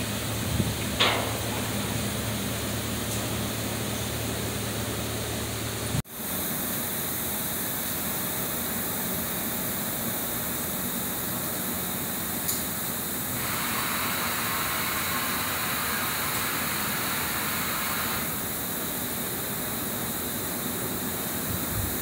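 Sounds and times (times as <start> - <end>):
industrial background hiss: 0.0 - 22.0
brighter hissing: 13.2 - 19.1.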